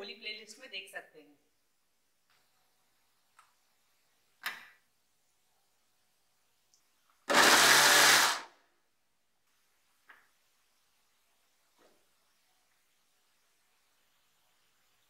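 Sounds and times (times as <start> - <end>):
mixer grinder running: 7.3 - 8.5.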